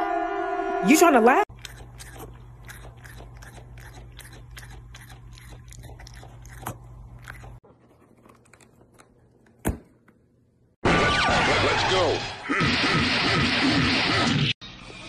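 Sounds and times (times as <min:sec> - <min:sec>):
cat chewing with crunching clicks: 0:01.5 - 0:09.5.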